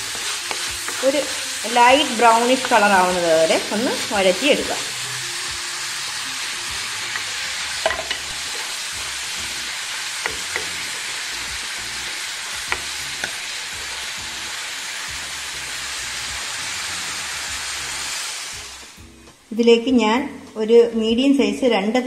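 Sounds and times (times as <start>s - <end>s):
onions sizzling in oil: 0.0s - 19.6s
wooden spatula knocking on pot: 7.1s - 8.2s, 10.2s - 10.8s, 12.6s - 13.4s.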